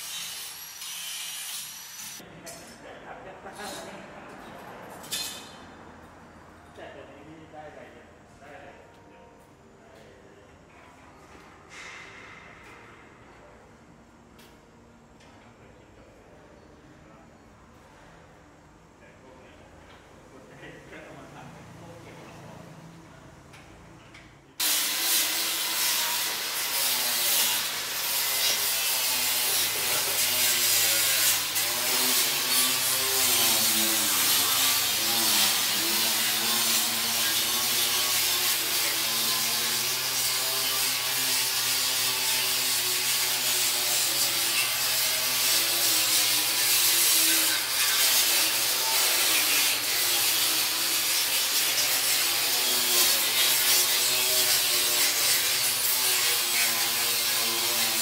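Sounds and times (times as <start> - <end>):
power tool scrubbing steel: 0.0 - 2.2, 24.6 - 58.0.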